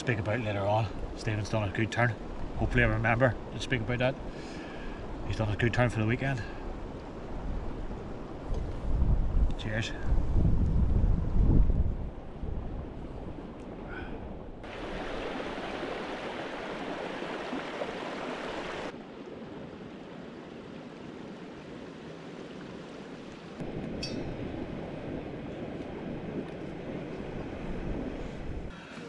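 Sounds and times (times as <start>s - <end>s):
wind on microphone: 6.1s - 19.0s, 23.6s - 28.8s.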